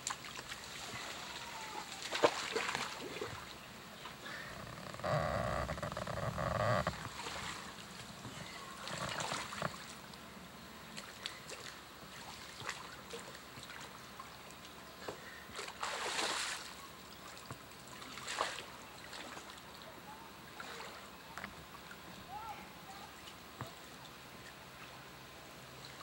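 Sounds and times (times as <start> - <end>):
water splashing: 0.0 - 3.6, 6.0 - 8.0, 8.6 - 10.1, 15.1 - 19.8, 20.5 - 22.3
branches rustling: 4.5 - 9.9.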